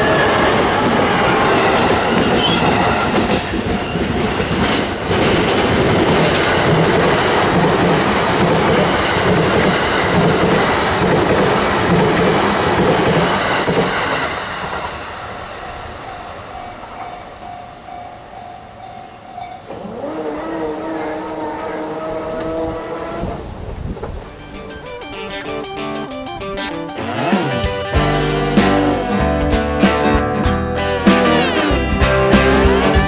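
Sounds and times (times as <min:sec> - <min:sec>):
wheel squeal: 0:00.0 - 0:04.4
train wheels on rails: 0:00.0 - 0:26.6
level crossing warning bell: 0:15.5 - 0:20.0, 0:24.2 - 0:27.3.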